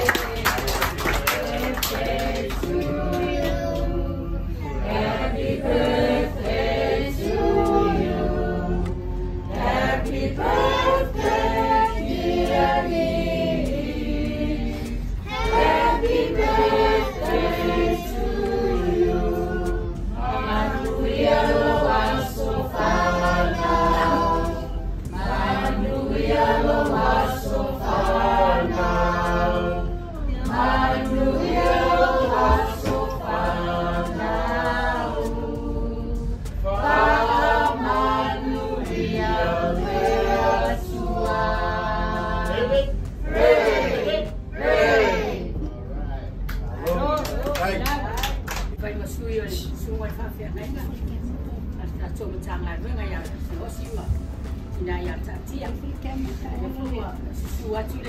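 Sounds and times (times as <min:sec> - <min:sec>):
group of voices singing: 0:00.0 - 0:45.7
steady low hum: 0:00.0 - 0:58.0.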